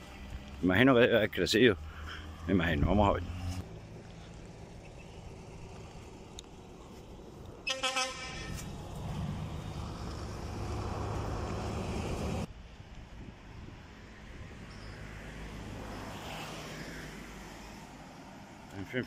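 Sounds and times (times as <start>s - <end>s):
vehicle engine and road noise: 0.0s - 19.0s
vehicle horn toot: 7.7s - 8.6s.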